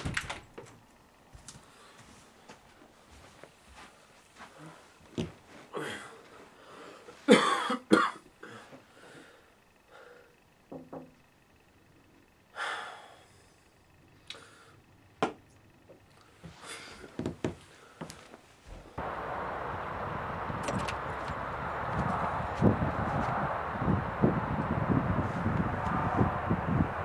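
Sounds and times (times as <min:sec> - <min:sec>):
soft breathing: 0:01.5 - 0:07.3, 0:08.5 - 0:10.6, 0:12.5 - 0:15.0, 0:16.2 - 0:18.9
man coughing: 0:07.2 - 0:08.7.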